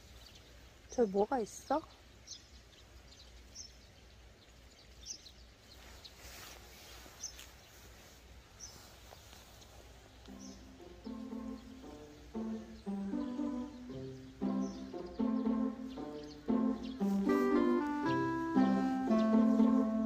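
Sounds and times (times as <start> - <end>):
outdoor background hiss: 0.0 - 20.0
small birds chirping: 0.0 - 20.0
soft music: 10.2 - 20.0.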